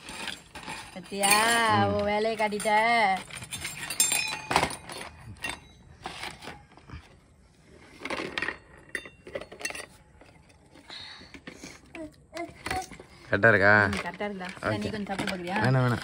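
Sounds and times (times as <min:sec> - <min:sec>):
tiny spoon clinking on pots: 0:03.7 - 0:04.5.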